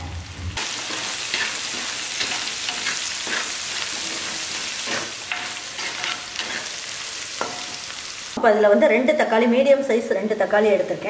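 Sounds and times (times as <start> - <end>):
chillies and garlic sizzling in oil: 0.0 - 8.8
metal spoon scraping a pot: 0.8 - 6.8.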